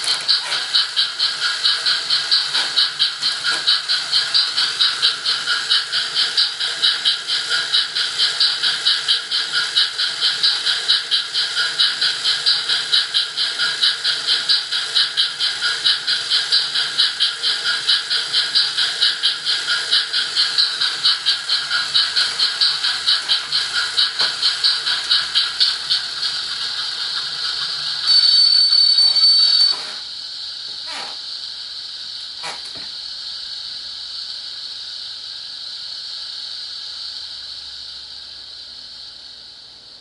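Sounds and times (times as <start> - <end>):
steam hiss: 0.0 - 39.9
model locomotive steam chuffs: 0.0 - 40.0
locomotive whistle blast: 28.0 - 30.0
short falling squeaks: 30.8 - 31.2.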